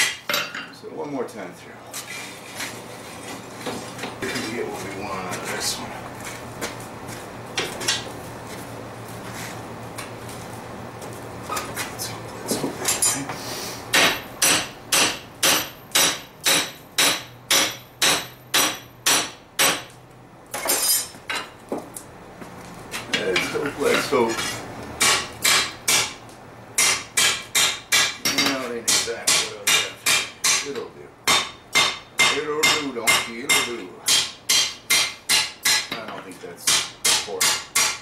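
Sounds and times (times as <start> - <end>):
hammer striking hot steel: 13.9 - 19.9, 25.0 - 26.2, 26.8 - 38.0.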